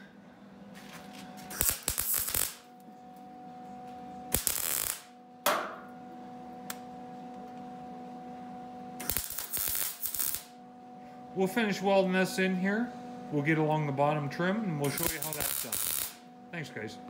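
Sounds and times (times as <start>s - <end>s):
welder arc crackling: 1.4s - 2.8s, 4.3s - 5.2s, 9.0s - 10.6s, 14.8s - 16.3s.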